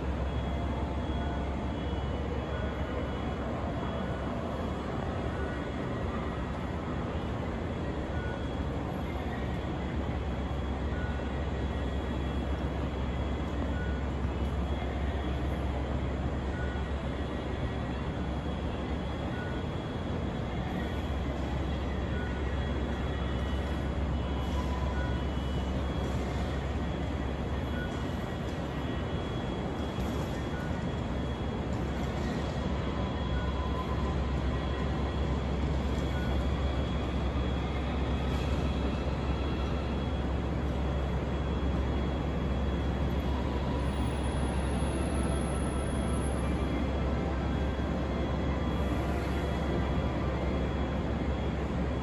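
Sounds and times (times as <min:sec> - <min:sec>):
ambient rumble and hiss: 0:00.0 - 0:52.0
faint high whine: 0:00.0 - 0:52.0
faint high beep: 0:08.0 - 0:17.3, 0:18.0 - 0:19.8, 0:20.7 - 0:50.0.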